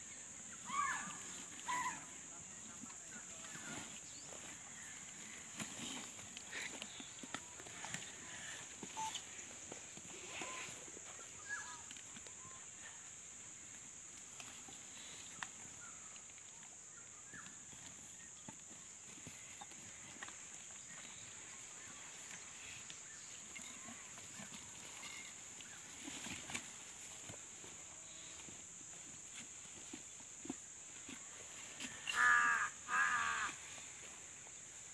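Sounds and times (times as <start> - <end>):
steady high-pitched hiss: 0.0 - 34.9
animals scuffling: 2.7 - 12.9, 17.4 - 34.9.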